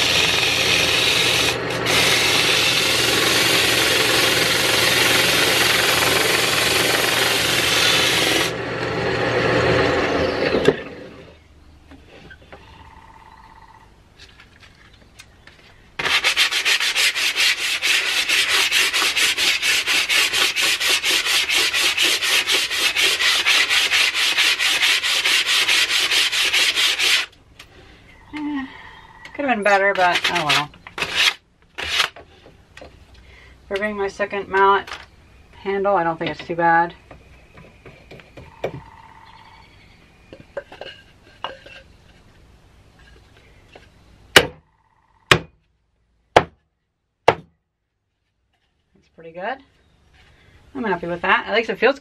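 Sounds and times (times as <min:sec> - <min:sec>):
lathe motor hum: 0:00.0 - 0:11.3
hand sanding strokes: 0:16.0 - 0:27.3
sandpaper hissing on wood: 0:16.0 - 0:27.3.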